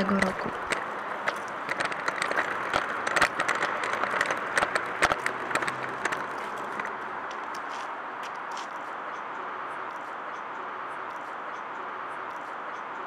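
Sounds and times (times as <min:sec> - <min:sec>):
heeled shoes clicking on brick: 0:00.0 - 0:08.8.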